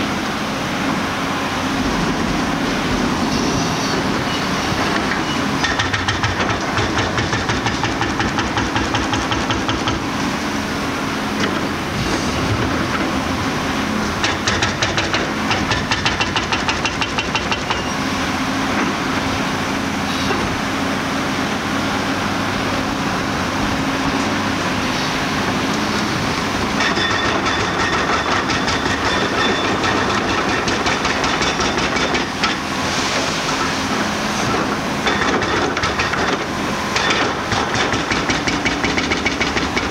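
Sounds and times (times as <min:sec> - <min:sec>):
excavator diesel engine droning: 0:00.0 - 0:05.8, 0:17.5 - 0:38.6.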